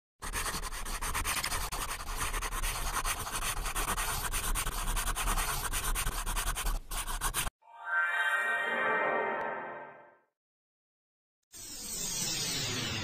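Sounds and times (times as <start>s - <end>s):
marker scribbling on whiteboard: 0.2s - 7.5s.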